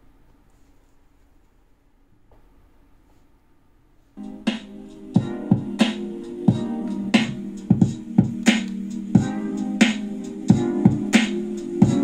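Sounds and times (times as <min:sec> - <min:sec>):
instrumental music: 0:04.2 - 0:12.0.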